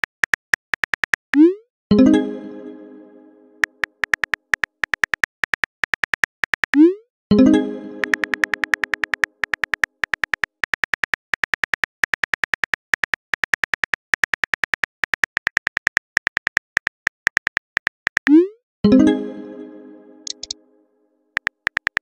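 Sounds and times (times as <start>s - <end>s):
phone keyboard typing clicks: 0.0s - 1.4s, 3.6s - 6.8s, 8.0s - 18.4s, 20.2s - 20.6s, 21.4s - 22.0s.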